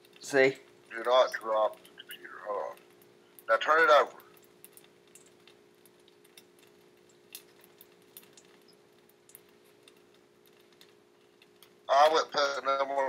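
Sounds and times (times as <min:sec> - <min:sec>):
faint steady hum: 0:00.0 - 0:13.0
faint small clicks: 0:04.2 - 0:11.8.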